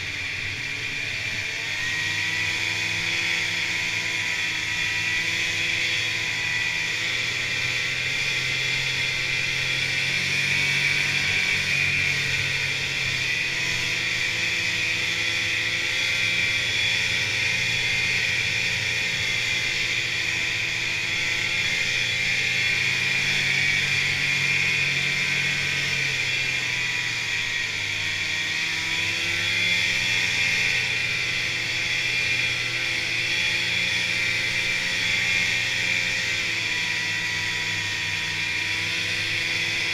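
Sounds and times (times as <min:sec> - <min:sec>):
snowmobile engine running: 0:00.0 - 0:39.9.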